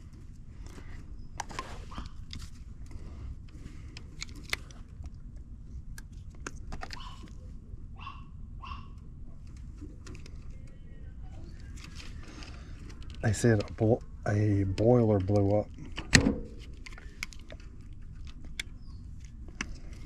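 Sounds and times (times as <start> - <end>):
animal calls like barks: 7.0 - 7.3, 8.0 - 9.0.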